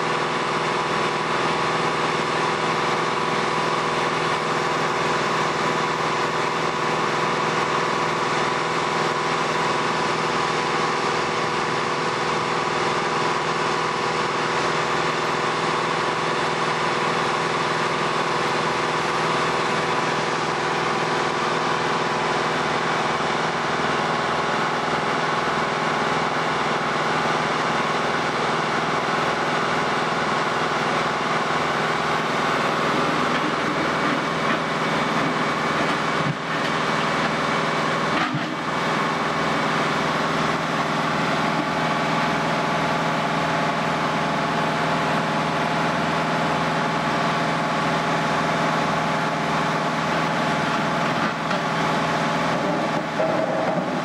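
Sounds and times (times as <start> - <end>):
diesel engine running: 0.0 - 54.0
constant whine: 30.8 - 43.7, 50.4 - 54.0.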